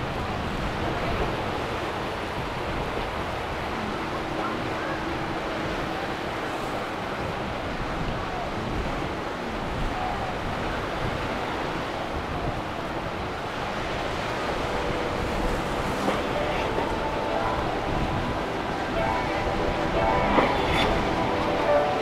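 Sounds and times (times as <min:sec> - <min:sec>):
faint boat engines humming: 0:00.0 - 0:22.0
waves rushing: 0:00.0 - 0:22.0
wind noise on microphone: 0:06.7 - 0:22.0.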